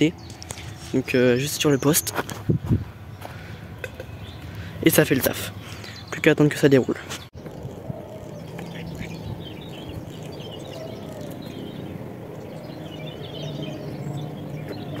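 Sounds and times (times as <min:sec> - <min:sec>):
faint bird chirps: 0:07.4 - 0:15.0.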